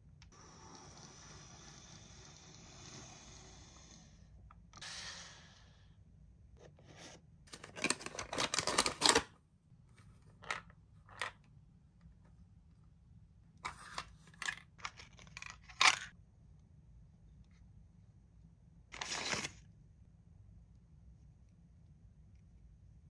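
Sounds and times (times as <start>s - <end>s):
packaging rustling: 7.5s - 9.3s.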